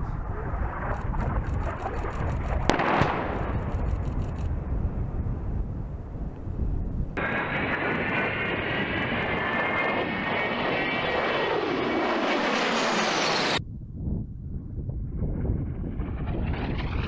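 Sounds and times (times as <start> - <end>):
jet engines whining overhead: 7.2 - 13.6, 15.0 - 17.0.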